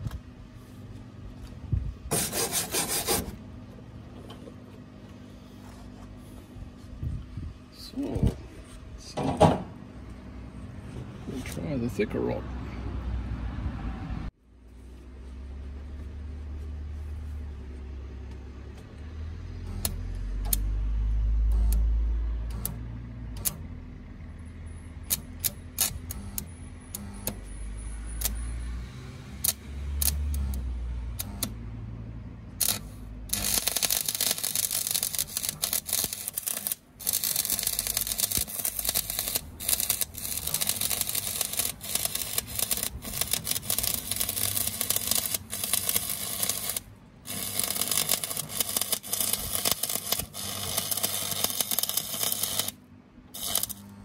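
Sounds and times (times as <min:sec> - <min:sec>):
welding rod tapping and scratching: 0:32.6 - 0:52.8, 0:53.4 - 0:53.9
welding arc crackling: 0:32.6 - 0:54.0.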